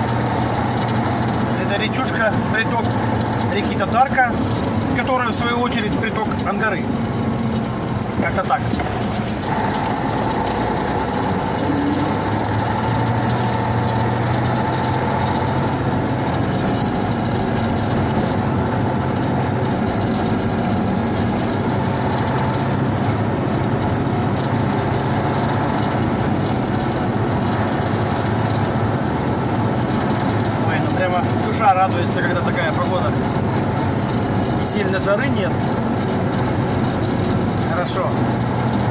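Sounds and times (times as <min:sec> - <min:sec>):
tyres on rough dirt track: 0:00.0 - 0:38.9
vehicle engine running: 0:00.0 - 0:38.9.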